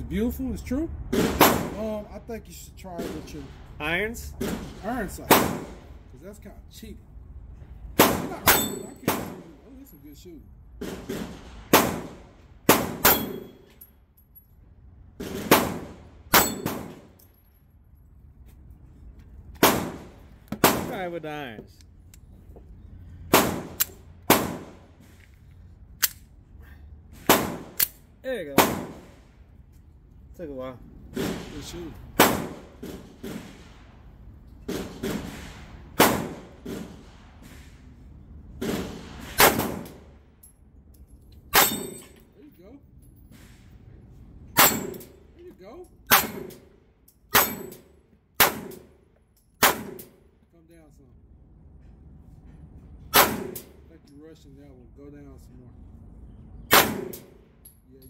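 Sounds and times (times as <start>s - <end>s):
pistol shots: 1.1s - 1.8s, 4.4s - 5.9s, 8.0s - 9.6s, 10.9s - 13.6s, 15.2s - 17.1s, 19.6s - 21.0s, 23.3s - 24.8s, 27.2s - 27.9s, 28.6s - 29.2s, 32.2s - 33.6s, 34.7s - 37.0s, 38.6s - 40.1s, 44.6s - 45.2s, 46.1s - 46.7s, 47.3s - 49.0s, 49.6s - 50.2s, 53.1s - 53.8s, 56.7s - 57.4s
bullets clanging off steel plates: 8.2s - 10.0s, 13.0s - 13.9s, 16.3s - 17.4s, 41.4s - 42.3s, 44.6s - 45.2s, 46.1s - 47.9s.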